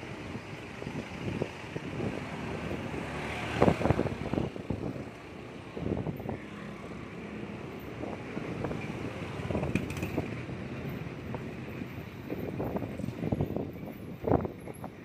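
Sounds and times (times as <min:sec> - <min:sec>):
passing vehicles: 0:00.0 - 0:15.0
wind buffeting microphone: 0:00.1 - 0:06.5, 0:07.6 - 0:15.0
motorbike engine hum: 0:03.6 - 0:12.0.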